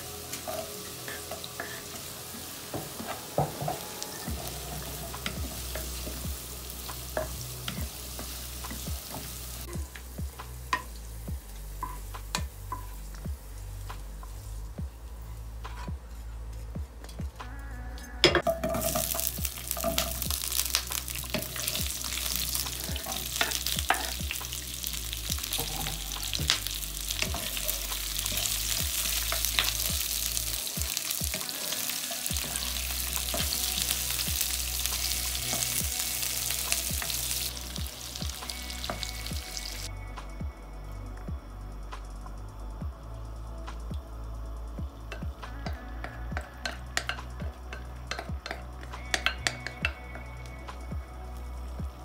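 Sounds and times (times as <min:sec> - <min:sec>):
vegetables sizzling in hot oil: 0:00.0 - 0:14.8, 0:18.4 - 0:39.9, 0:45.0 - 0:49.8
faint background music with beat: 0:00.0 - 0:52.0
wooden spoon scraping a pan: 0:00.4 - 0:09.6, 0:18.4 - 0:34.3.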